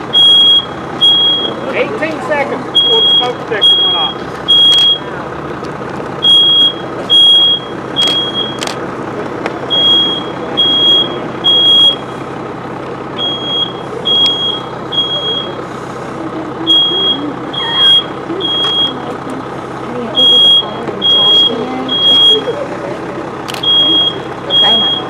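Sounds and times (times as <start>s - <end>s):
fire truck engine drone: 0.0s - 25.0s
smoke alarm beeping: 0.1s - 1.6s, 2.8s - 5.1s, 6.2s - 8.6s, 9.7s - 12.1s, 13.2s - 15.6s, 16.7s - 19.0s, 20.2s - 22.5s, 23.6s - 25.0s.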